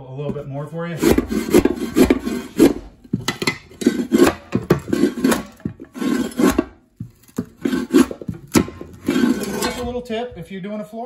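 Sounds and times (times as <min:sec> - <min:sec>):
shovel scraping wooden subfloor: 0:03.7 - 0:10.1.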